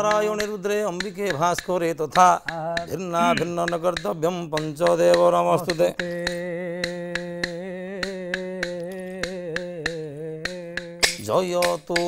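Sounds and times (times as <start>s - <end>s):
wooden clappers clicking: 0.0s - 12.0s
person singing: 2.4s - 12.0s.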